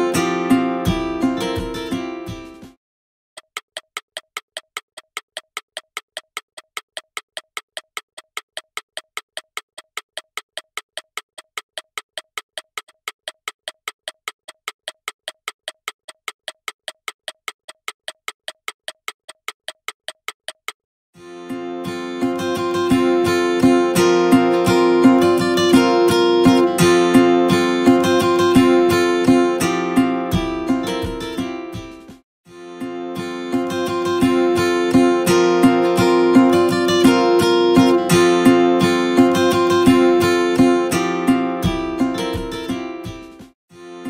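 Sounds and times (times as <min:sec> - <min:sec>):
acoustic guitar music: 0:00.0 - 0:02.8, 0:21.2 - 0:44.0
clock ticking: 0:03.4 - 0:20.8.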